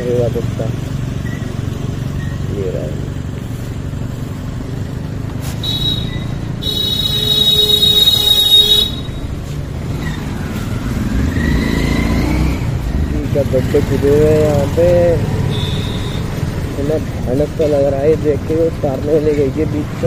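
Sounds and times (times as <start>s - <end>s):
motorcycle engine running: 0.0s - 20.0s
vehicle horn honking: 5.5s - 9.4s, 15.4s - 16.4s.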